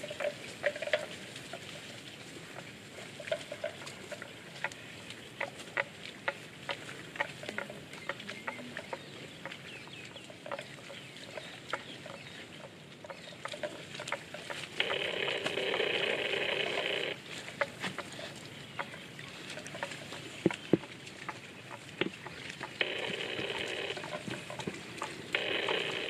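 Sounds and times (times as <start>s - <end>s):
loud animal call: 14.8s - 17.2s, 22.8s - 26.0s.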